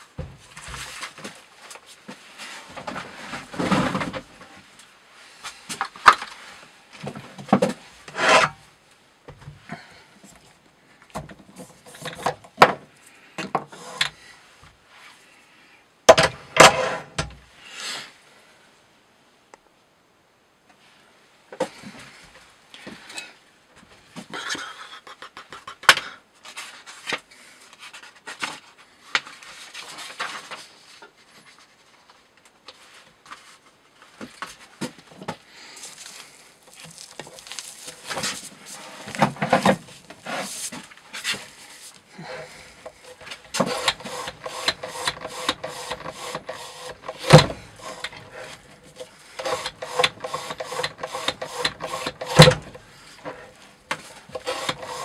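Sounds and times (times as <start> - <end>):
rope rubbing and squeaking on knife: 36.7 - 39.2, 39.9 - 42.0.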